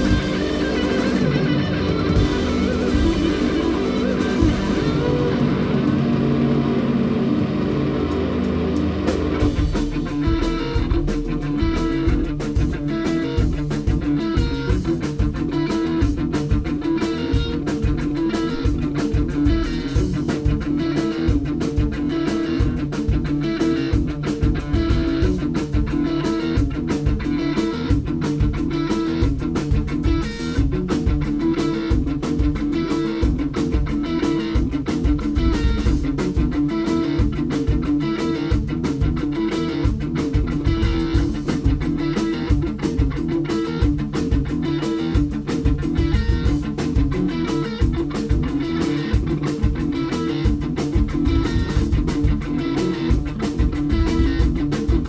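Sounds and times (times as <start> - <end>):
bass guitar: 0.0 - 55.0
drum kit: 0.0 - 55.0
electric guitar: 0.0 - 55.0.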